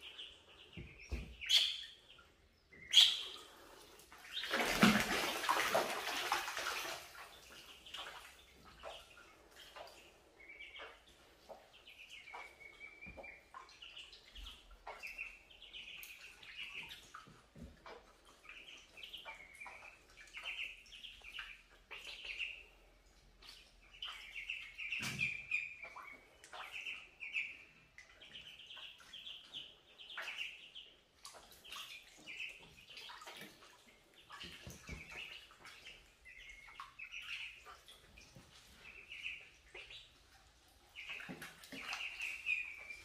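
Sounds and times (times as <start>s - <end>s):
ducklings peeping: 0.0s - 43.0s
water splashes: 3.2s - 20.6s, 31.2s - 40.1s, 40.9s - 43.0s.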